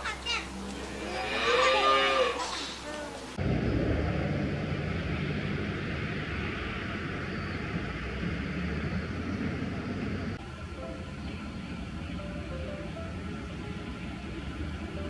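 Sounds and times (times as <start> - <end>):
even hiss: 0.0 - 15.0
low rumble: 3.3 - 15.0.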